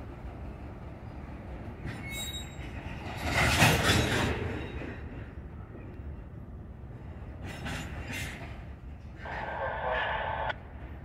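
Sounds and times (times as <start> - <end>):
freight train rumbling on rails: 0.0 - 11.0
rushing noise: 9.2 - 10.6.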